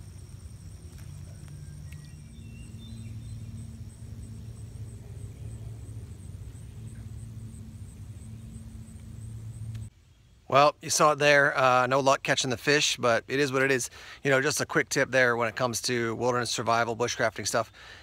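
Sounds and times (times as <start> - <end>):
steady low drone: 0.0 - 9.9
thin high pulsing tone: 0.0 - 9.9.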